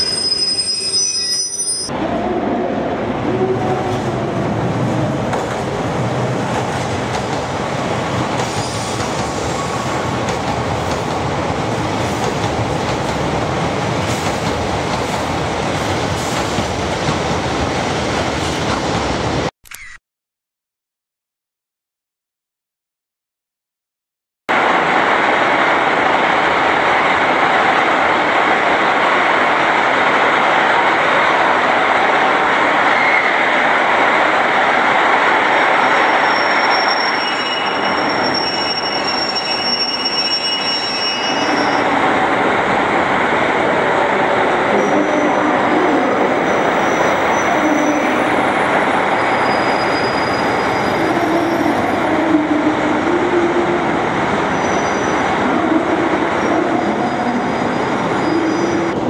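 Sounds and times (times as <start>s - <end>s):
high-pitched wheel squeals: 0.0s - 1.9s, 36.1s - 41.9s, 49.2s - 51.9s, 57.1s - 59.0s
train wheels rumbling on rails: 3.0s - 19.5s.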